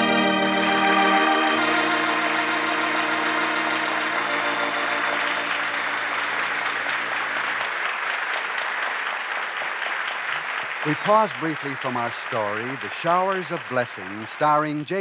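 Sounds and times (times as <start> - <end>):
organ holding a chord: 0.0 - 7.8
applause: 0.0 - 15.0.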